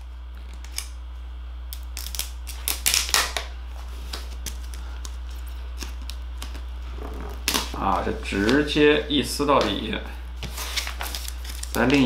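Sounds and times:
plastic shrink-wrap crinkling: 0:10.6 - 0:12.0.

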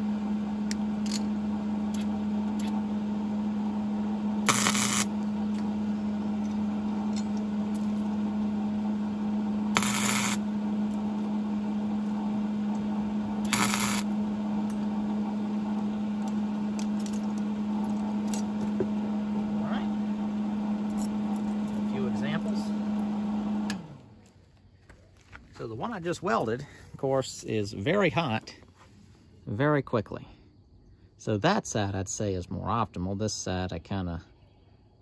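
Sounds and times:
steady low hum: 0:00.0 - 0:35.0
welding arc crackling: 0:04.4 - 0:05.2, 0:09.7 - 0:10.5, 0:13.4 - 0:14.2.

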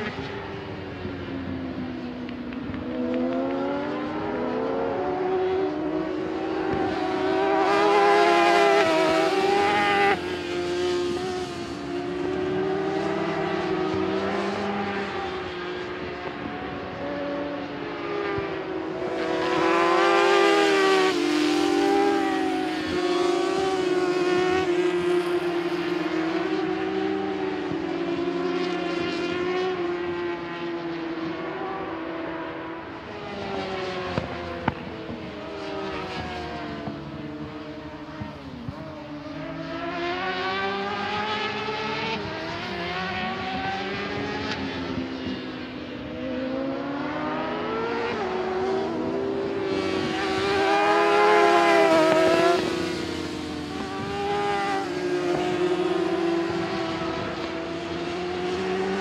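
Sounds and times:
racing motorcycles passing: 0:00.0 - 0:59.0.

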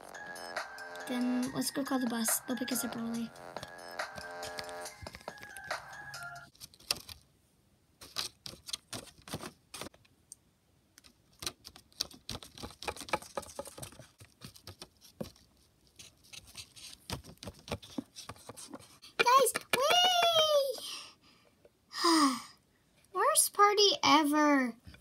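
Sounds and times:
background music: 0:00.0 - 0:06.5
toy figurines clicking on hard surface: 0:19.2 - 0:20.9.

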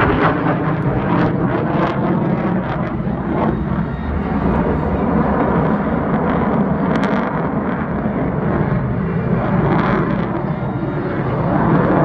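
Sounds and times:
jet engines rumbling overhead: 0:00.0 - 0:12.0.

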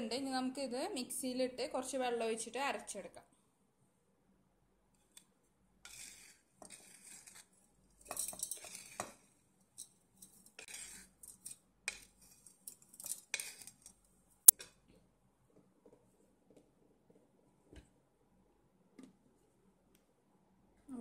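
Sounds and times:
spoon scraping a pan: 0:05.8 - 0:13.9
dry crumbs falling into steel jar: 0:08.0 - 0:09.2, 0:09.8 - 0:13.9.

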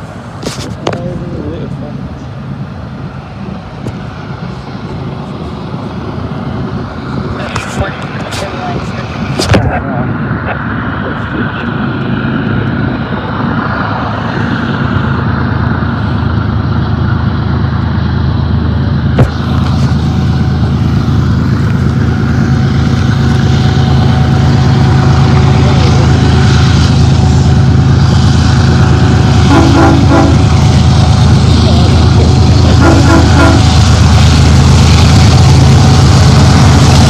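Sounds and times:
diesel locomotive engines droning: 0:00.0 - 0:37.0.

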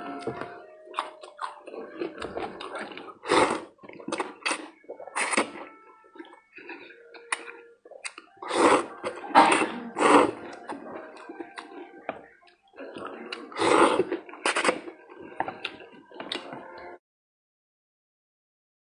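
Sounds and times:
person slurping noodles: 0:02.0 - 0:05.6, 0:08.4 - 0:10.8, 0:12.9 - 0:16.5.

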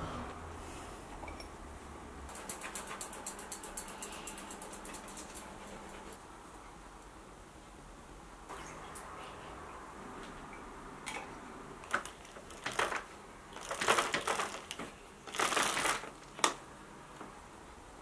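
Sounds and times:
handling noises: 0:11.8 - 0:16.6.

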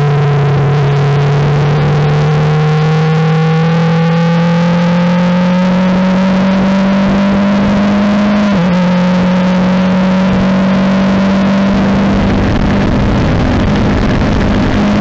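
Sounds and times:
race car engine at full throttle: 0:00.0 - 0:15.0.

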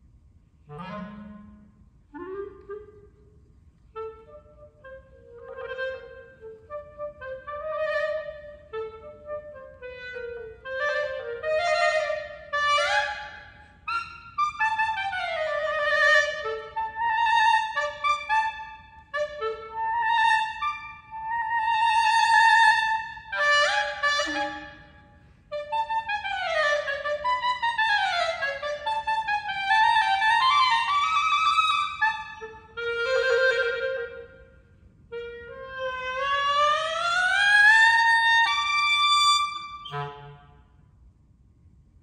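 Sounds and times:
clarinet melody: 0:00.6 - 0:40.8.

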